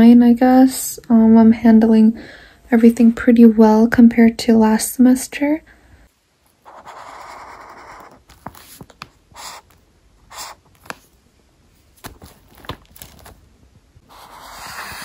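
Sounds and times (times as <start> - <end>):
highlighter scratching on paper: 6.6 - 10.9, 14.0 - 15.0.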